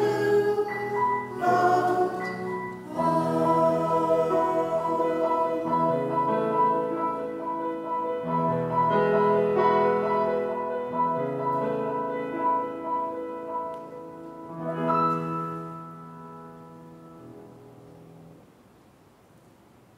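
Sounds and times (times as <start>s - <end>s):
piano playing slow chords: 0.0s - 18.6s.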